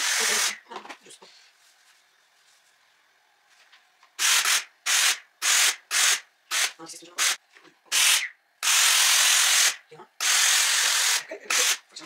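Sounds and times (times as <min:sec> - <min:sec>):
steam iron hissing: 0:00.0 - 0:00.6.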